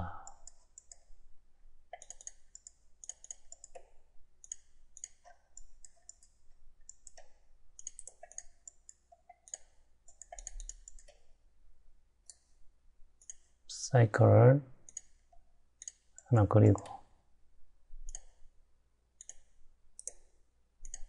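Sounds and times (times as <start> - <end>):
computer mouse clicking: 0.2 - 1.1, 1.9 - 11.3, 13.2 - 13.6, 14.9 - 16.9, 18.0 - 18.5, 19.2 - 21.0.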